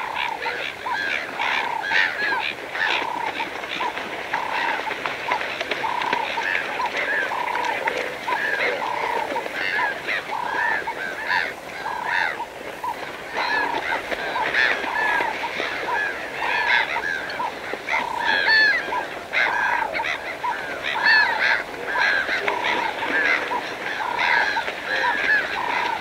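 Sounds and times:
birds calling: 0:00.0 - 0:26.0.

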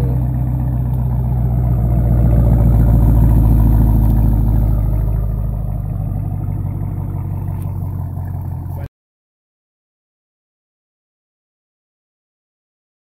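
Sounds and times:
car engine idling: 0:00.0 - 0:08.9.

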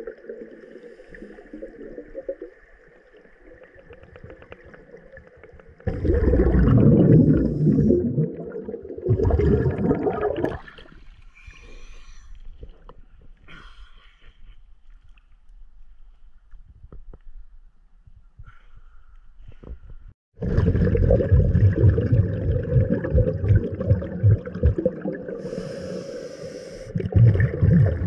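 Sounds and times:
water bubbling and rushing: 0:00.0 - 0:10.8, 0:20.4 - 0:26.2, 0:26.9 - 0:28.0
faint water gurgle: 0:00.0 - 0:13.9, 0:20.4 - 0:28.0.

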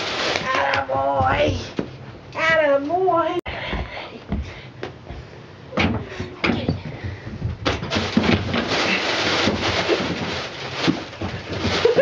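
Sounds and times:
rustling and scraping: 0:00.0 - 0:02.7, 0:06.0 - 0:12.0.

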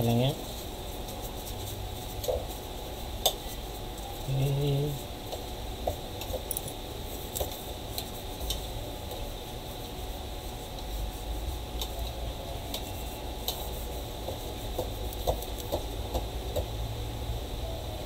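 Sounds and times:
tissue wiping phone: 0:07.0 - 0:15.9.

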